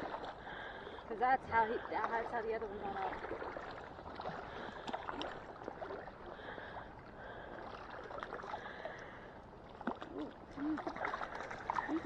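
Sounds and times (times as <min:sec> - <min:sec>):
water sloshing around legs: 0:00.0 - 0:12.0
small splashes and clicks: 0:02.0 - 0:06.0, 0:09.7 - 0:12.0.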